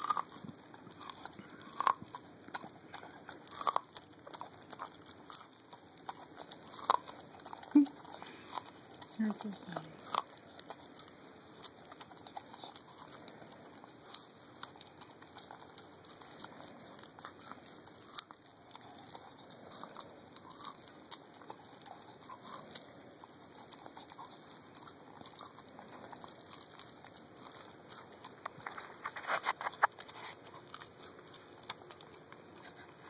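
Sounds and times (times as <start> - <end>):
dog chewing corn off the cob: 0.0 - 33.0.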